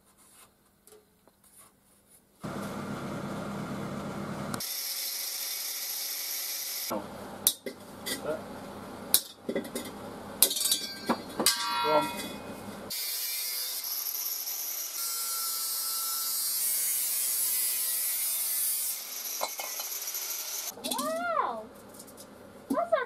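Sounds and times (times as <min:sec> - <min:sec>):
angle grinder cutting steel: 0:04.6 - 0:06.9, 0:12.1 - 0:20.8
metal canister knocks and clangs: 0:09.5 - 0:12.4.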